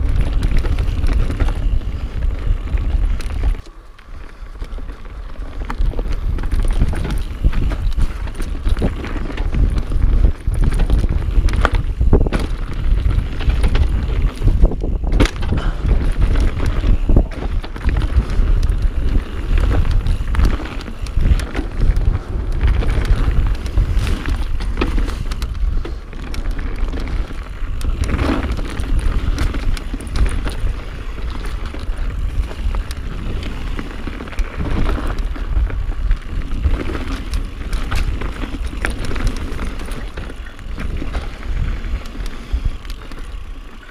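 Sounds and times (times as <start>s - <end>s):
bike knocking and rattling: 0.0s - 43.9s
tyres rumbling on dirt trail: 0.0s - 43.9s
wind on microphone: 0.0s - 43.9s.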